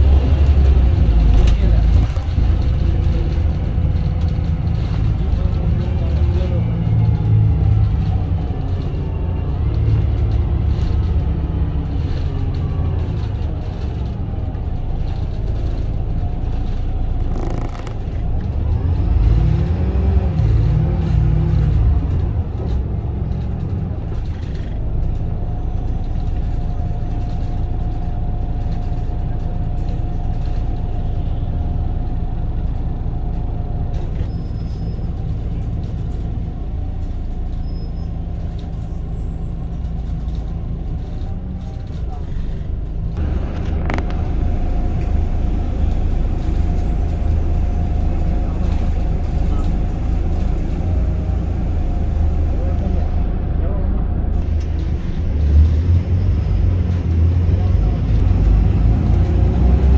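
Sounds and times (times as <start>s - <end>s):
vehicle low rumble: 0.0s - 59.9s.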